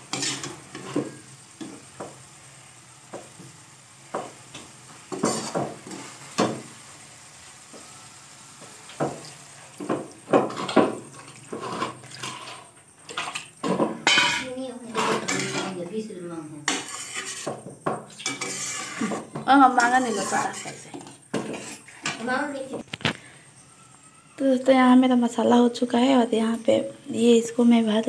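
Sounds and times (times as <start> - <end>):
spatula scraping steel pan: 0.0 - 1.3, 5.1 - 6.2, 10.4 - 15.8, 16.6 - 22.3
light sizzling: 0.0 - 28.0.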